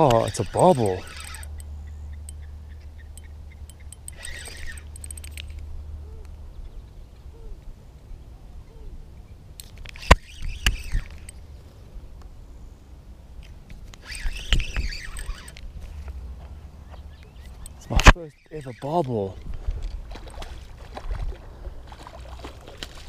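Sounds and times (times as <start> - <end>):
fishing reel clicking: 0.0 - 1.7, 3.1 - 5.6, 9.6 - 11.4, 13.9 - 15.6.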